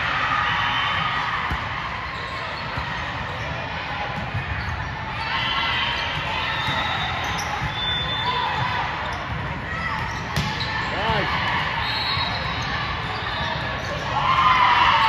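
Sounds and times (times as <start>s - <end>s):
crowd voices talking and calling: 0.0s - 15.0s.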